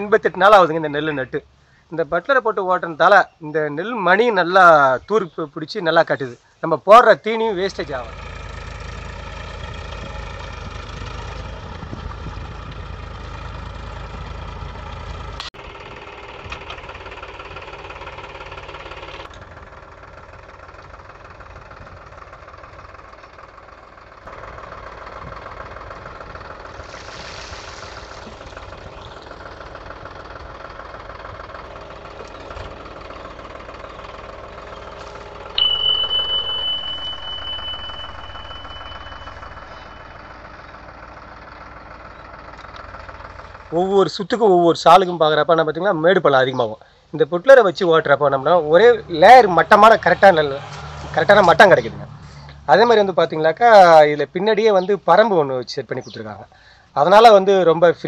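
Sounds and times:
tractor diesel engine running: 0:06.9 - 0:58.0
bright steady chime: 0:35.6 - 0:40.6.

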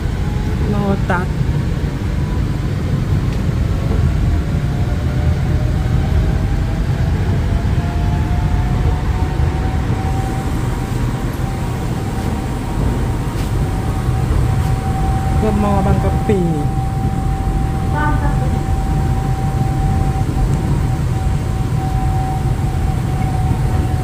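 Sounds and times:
train cabin rumble: 0:00.0 - 0:24.0
faint rising whine: 0:06.4 - 0:24.0.

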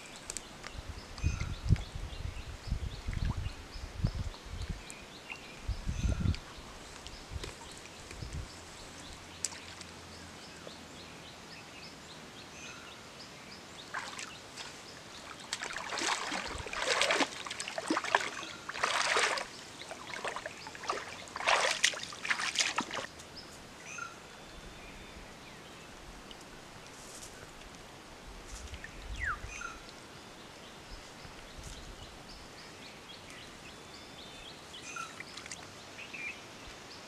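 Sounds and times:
water sloshing around wading legs: 0:13.8 - 0:23.1.

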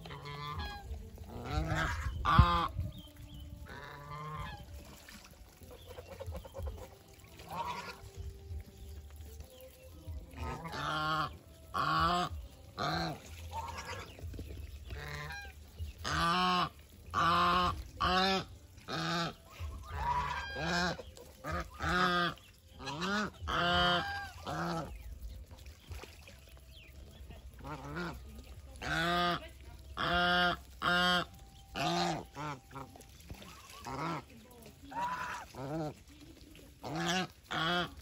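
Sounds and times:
geese honking: 0:00.0 - 0:02.8, 0:03.6 - 0:09.7, 0:10.3 - 0:25.3, 0:27.5 - 0:38.0.

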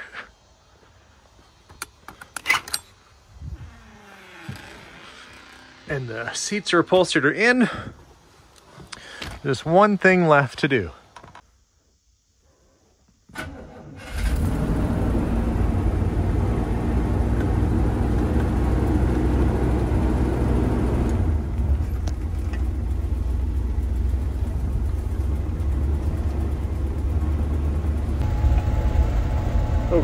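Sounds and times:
engine cranking and starting: 0:13.3 - 0:30.0
engine running and idling: 0:14.1 - 0:30.0.

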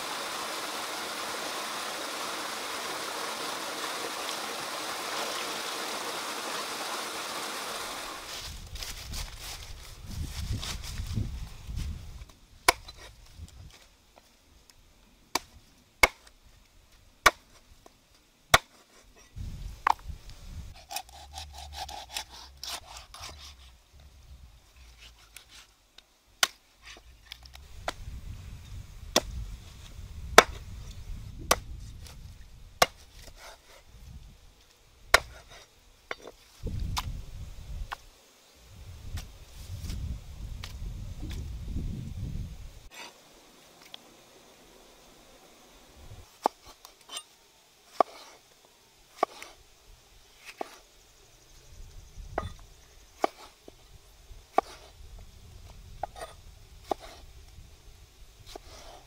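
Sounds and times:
cleaver chopping on wooden block: 0:35.2 - 0:35.5.

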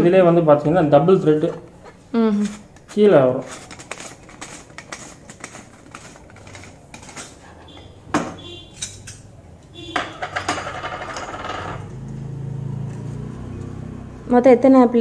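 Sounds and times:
brass utensils clinking: 0:03.5 - 0:11.9.

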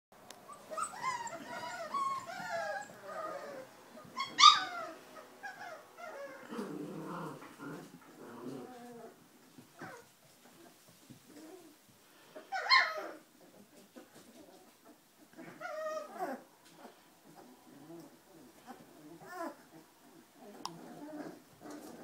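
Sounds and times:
puppies squealing and whining: 0:00.4 - 0:09.2, 0:12.4 - 0:22.0
puppy yelping: 0:00.5 - 0:06.6, 0:12.5 - 0:16.4.

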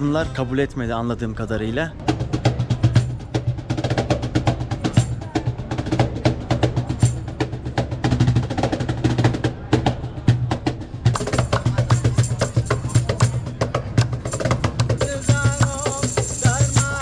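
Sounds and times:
fast busy percussion: 0:01.9 - 0:17.0.

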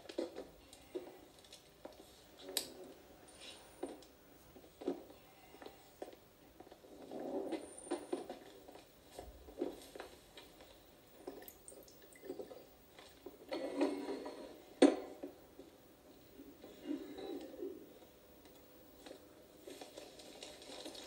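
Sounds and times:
coffee pouring into cups: 0:11.2 - 0:12.7.

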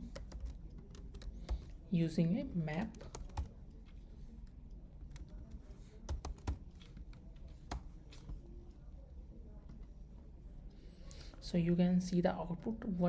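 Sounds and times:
computer keyboard keystrokes: 0:00.0 - 0:01.8, 0:02.8 - 0:08.3.

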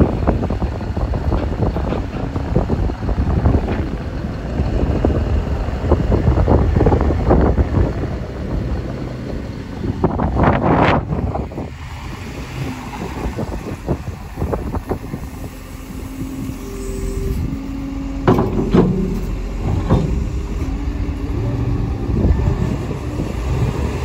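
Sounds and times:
heavy machinery rumbling: 0:00.0 - 0:24.0
sharp knocks or clanks: 0:18.2 - 0:20.4.

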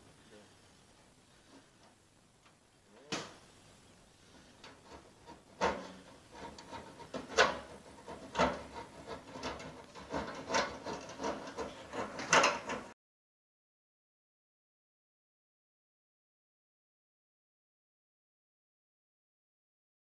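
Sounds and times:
knocks and scrapes on metal roof: 0:04.2 - 0:13.0.

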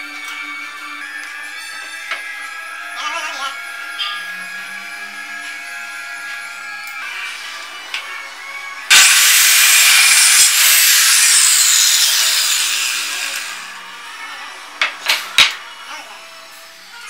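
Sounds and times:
circular saw cutting plywood: 0:08.9 - 0:13.7.

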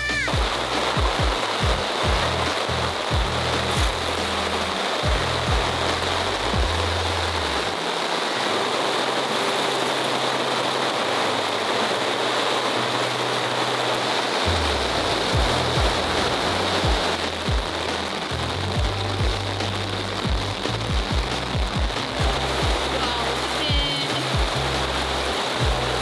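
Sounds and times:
music with bass and kick drum: 0:00.0 - 0:07.7, 0:14.5 - 0:26.0
heavy rain: 0:00.0 - 0:26.0.

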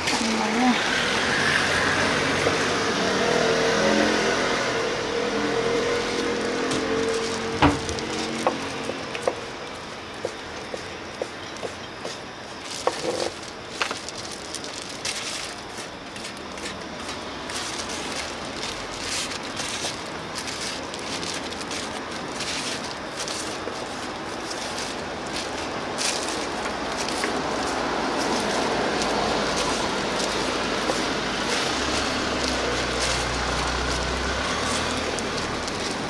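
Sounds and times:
street noise: 0:00.0 - 0:36.0
food cutting clicks and rustles: 0:06.1 - 0:36.0.

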